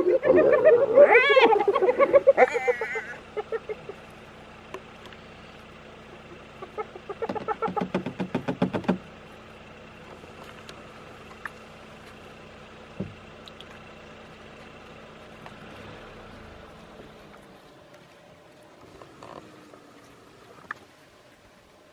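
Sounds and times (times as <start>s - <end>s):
hyena giggling calls: 0.0s - 4.3s, 6.0s - 7.9s
steady low hum: 0.0s - 7.2s.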